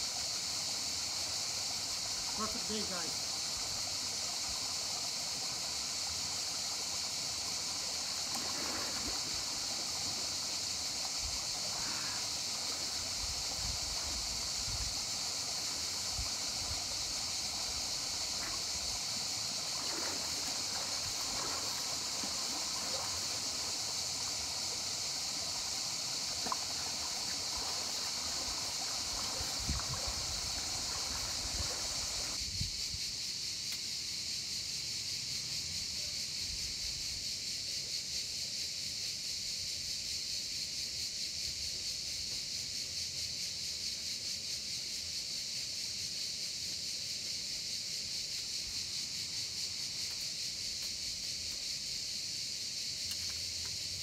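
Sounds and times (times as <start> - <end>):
river water running: 0.0 - 32.4
steady high hiss: 0.0 - 54.0
person wading and swimming: 7.8 - 32.4.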